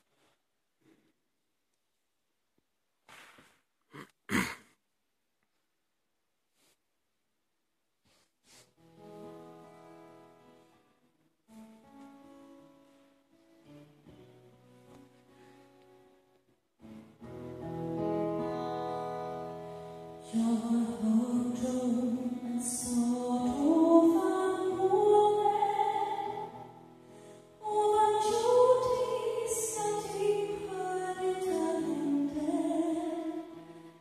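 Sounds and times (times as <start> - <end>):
acoustic guitar: 8.0 - 34.0
woman singing: 20.2 - 26.8, 27.6 - 34.0.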